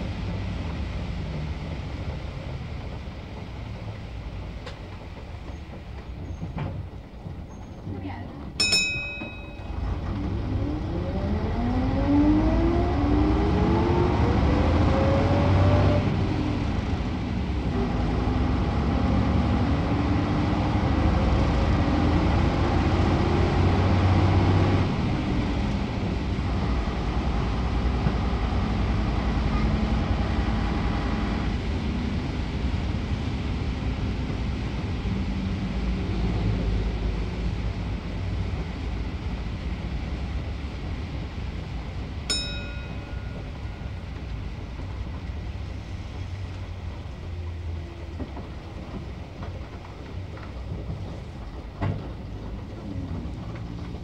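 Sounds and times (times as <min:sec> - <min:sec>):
bus engine pulling away: 0:00.0 - 0:08.6, 0:09.4 - 0:54.0.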